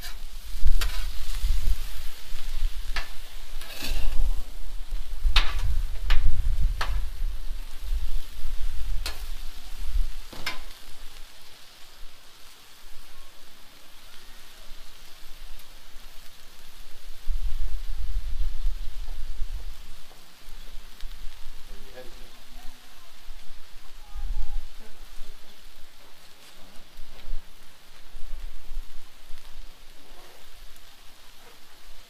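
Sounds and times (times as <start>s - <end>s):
metal spatula scraping and tapping: 0.0s - 1.2s, 2.9s - 4.2s
low microphone rumble: 0.0s - 11.3s
food sizzling on a griddle: 0.0s - 32.0s.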